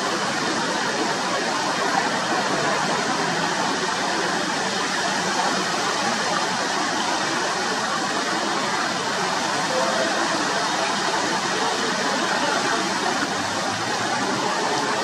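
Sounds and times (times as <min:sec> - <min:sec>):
fountain water spraying: 0:00.0 - 0:15.0.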